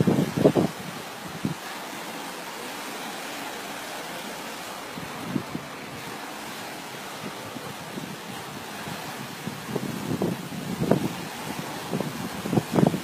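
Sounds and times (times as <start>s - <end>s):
wind buffeting microphone: 0.0s - 1.7s, 4.7s - 13.0s
waves breaking on rocky shore: 0.0s - 13.0s
wind: 0.0s - 13.0s.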